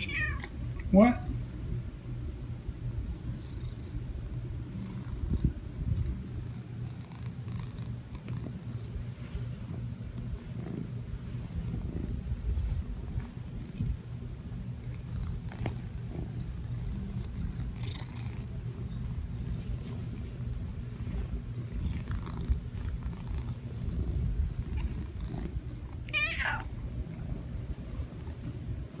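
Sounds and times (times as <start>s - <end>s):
cat purring: 2.7s - 29.0s.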